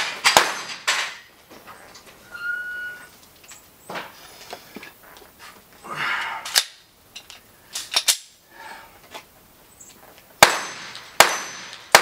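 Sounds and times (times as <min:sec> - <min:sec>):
pistol gunshot cracks: 0:00.0 - 0:01.3, 0:10.4 - 0:12.0.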